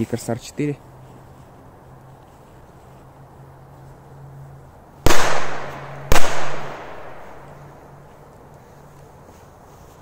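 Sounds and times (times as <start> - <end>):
firecracker bangs with echo: 5.1 - 7.4.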